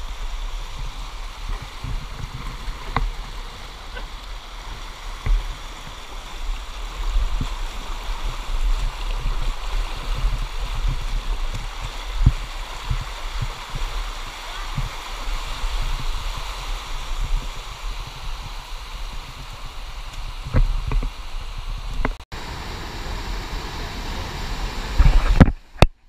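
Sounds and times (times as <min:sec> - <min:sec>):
creek water rushing and gurgling: 0:00.0 - 0:26.0.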